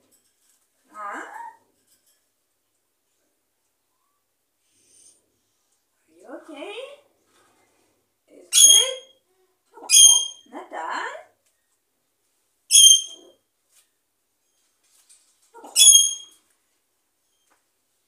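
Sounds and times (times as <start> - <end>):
parrot whistling and mimicking speech: 8.5 - 9.2, 9.8 - 10.5.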